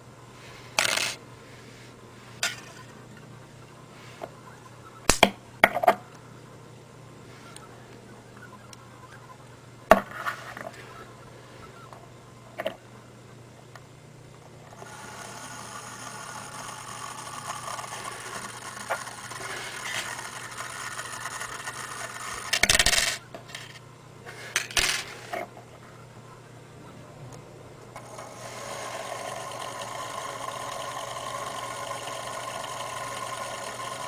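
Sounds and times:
wire scraping and rattling on battery: 14.7s - 25.5s.

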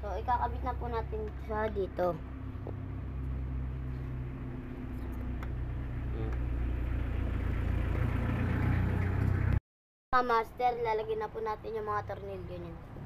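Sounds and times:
engine humming: 0.0s - 9.6s.

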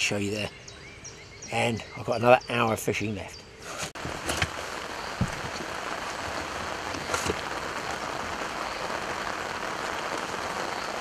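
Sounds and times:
heavy rain on water: 4.0s - 11.0s.

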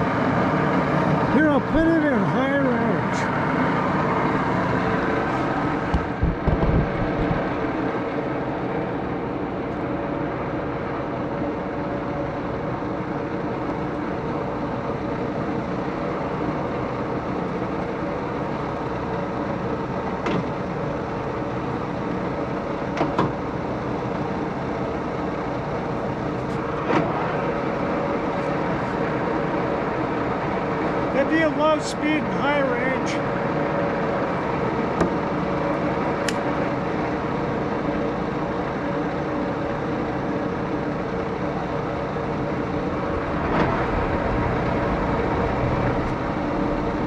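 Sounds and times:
lathe gears whirring: 12.6s - 47.0s
single clicks: 36.2s - 36.4s.

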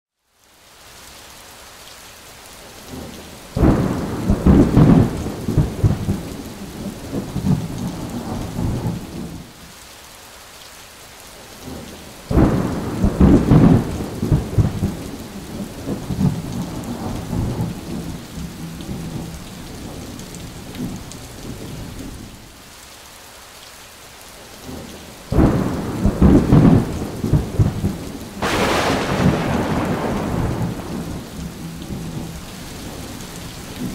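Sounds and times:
steady rain: 0.1s - 33.9s
sharp thunder crack: 3.6s - 6.1s, 12.3s - 15.0s, 25.3s - 32.3s
rolling thunder: 3.6s - 9.5s, 12.3s - 21.7s, 25.3s - 33.9s.

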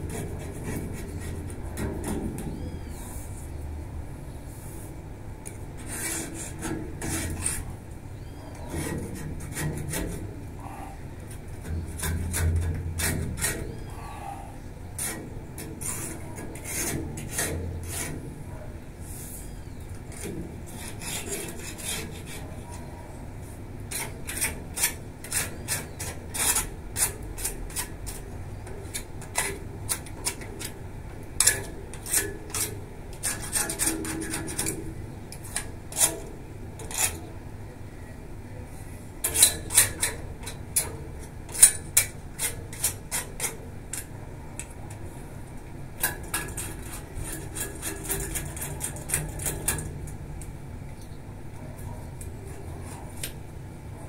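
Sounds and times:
hand rasping on metal railing: 0.0s - 2.8s, 5.8s - 7.8s, 8.7s - 14.4s, 15.0s - 18.6s, 20.1s - 22.9s, 23.9s - 30.8s, 31.4s - 37.4s, 46.0s - 50.2s.

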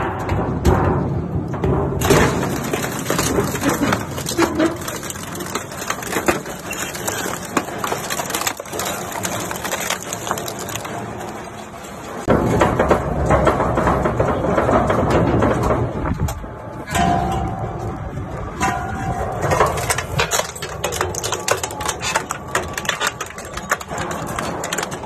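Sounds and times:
metal crunching and snapping: 0.0s - 25.0s
shredder cutter shafts grinding: 2.0s - 12.3s, 18.6s - 25.0s.

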